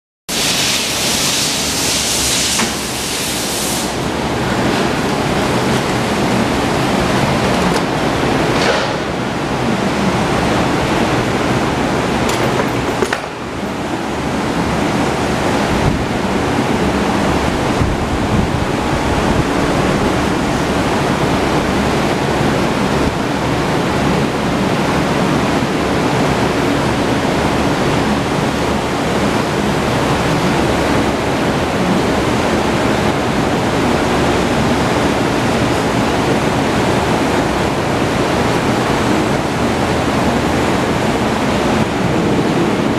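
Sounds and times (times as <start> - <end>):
bright hiss: 0.3 - 4.2
loud steady rushing noise: 0.3 - 42.9.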